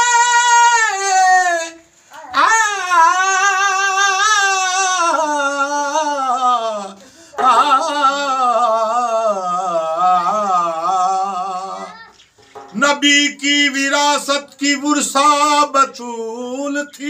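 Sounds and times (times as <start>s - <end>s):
man singing unaccompanied: 0.0s - 17.0s
singer breathing: 7.0s - 7.4s, 12.3s - 12.7s.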